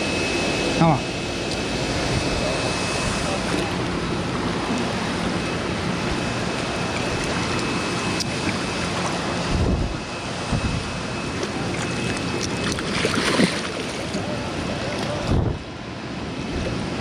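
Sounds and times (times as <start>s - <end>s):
wind on microphone: 9.2s - 11.3s, 15.1s - 15.8s
fish splashing in net: 11.7s - 14.2s
river water rushing: 12.5s - 14.2s.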